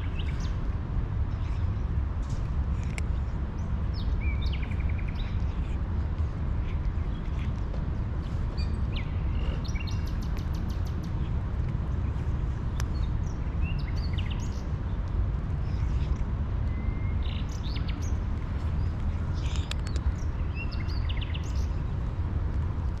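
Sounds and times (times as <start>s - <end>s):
small birds chirping: 0.0s - 23.0s
steady low rumble: 0.0s - 23.0s.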